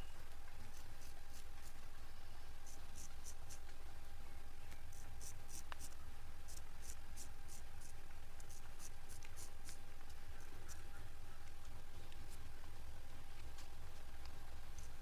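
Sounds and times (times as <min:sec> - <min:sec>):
razor scraping stubble: 0:04.9 - 0:10.8.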